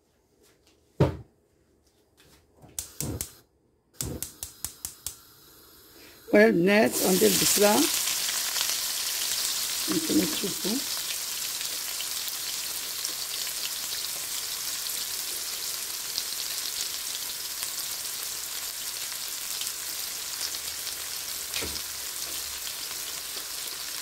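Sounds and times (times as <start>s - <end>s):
soft knock: 1.0s - 1.3s
onion sizzling in oil: 4.0s - 24.0s.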